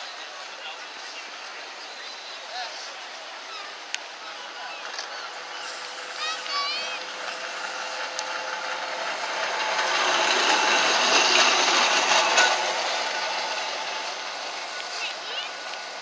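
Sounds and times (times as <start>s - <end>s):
tram rattling past: 3.2s - 16.0s.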